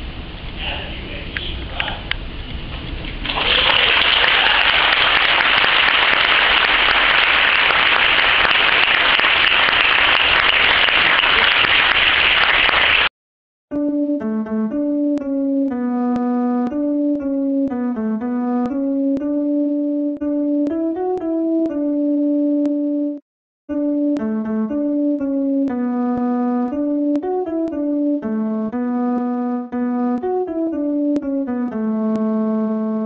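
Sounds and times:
congregation applauding: 3.2 - 13.1
piano music: 13.7 - 33.0.

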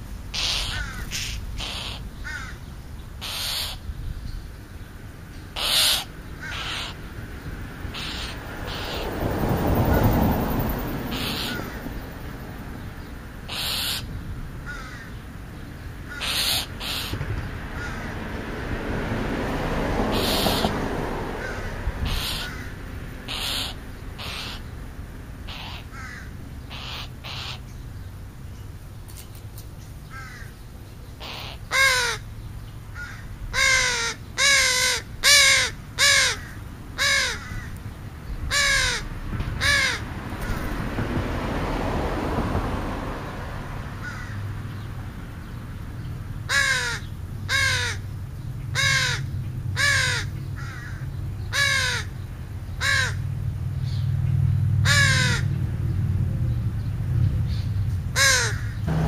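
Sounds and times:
crow cawing: 0.3 - 3.8, 5.6 - 7.1, 7.9 - 9.2, 11.1 - 11.9, 13.5 - 15.2, 16.1 - 18.2, 20.1 - 24.7, 25.4 - 27.6, 30.1 - 30.5, 31.2 - 32.3, 32.9 - 37.8, 38.5 - 40.6, 44.0 - 44.6, 46.5 - 48.0, 48.7 - 52.1, 52.8 - 53.3, 54.8 - 55.5, 58.2 - 59.0.

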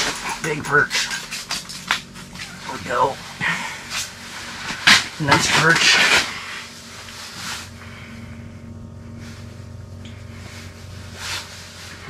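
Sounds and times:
steady low hum: 0.0 - 12.0
scuffs and rustles: 9.1 - 12.0.

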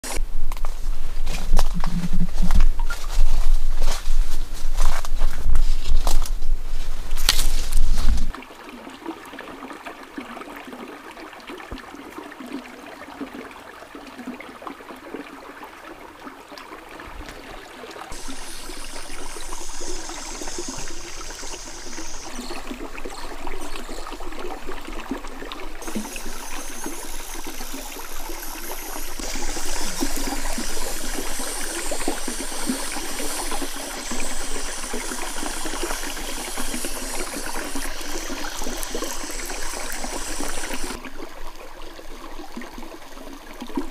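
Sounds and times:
stream running over stones: 0.0 - 43.9
high hiss: 18.1 - 25.0, 25.8 - 41.0.

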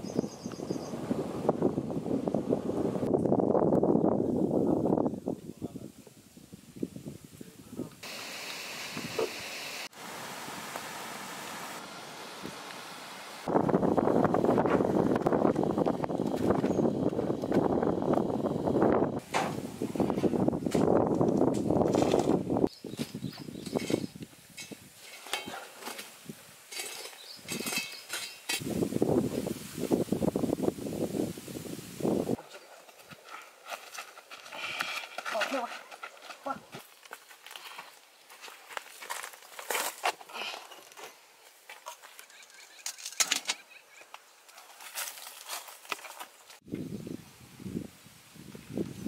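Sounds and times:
rustling and scraping: 19.2 - 28.7, 32.4 - 46.6
charcoal embers clinking: 23.6 - 28.8.

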